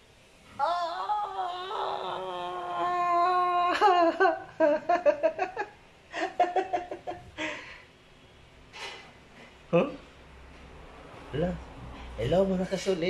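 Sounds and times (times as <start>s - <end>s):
man laughing: 3.6s - 7.2s.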